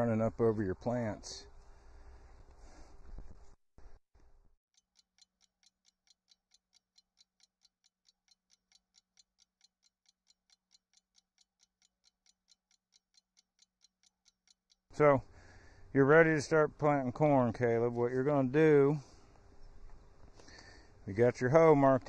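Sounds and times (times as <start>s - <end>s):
fast clock-like ticking: 4.8s - 15.0s.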